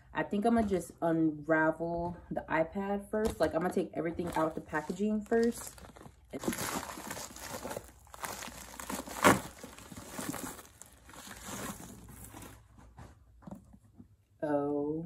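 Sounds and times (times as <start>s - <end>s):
plastic wrap crinkling: 4.2s - 12.8s.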